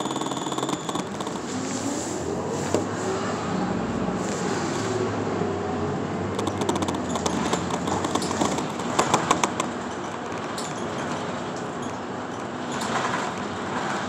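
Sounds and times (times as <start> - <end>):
rattling clicks: 0.0 - 1.5, 6.3 - 13.2
bus engine and road drone: 0.0 - 14.0.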